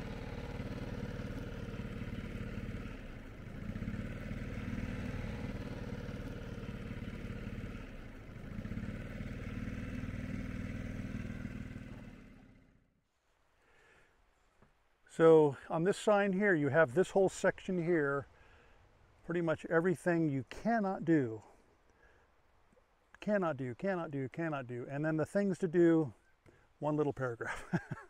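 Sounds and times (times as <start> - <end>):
boat motor running: 0.0 - 12.8.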